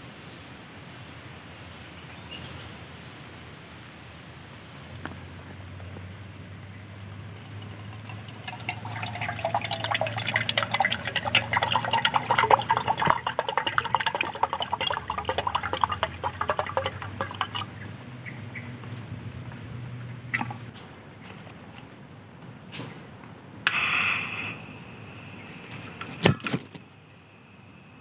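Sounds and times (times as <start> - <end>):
liquid pouring into a container: 7.0 - 17.8, 20.3 - 20.8.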